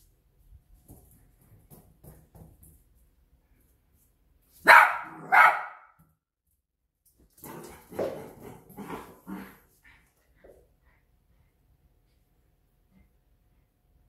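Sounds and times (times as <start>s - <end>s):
puppy barking: 4.6s - 6.0s.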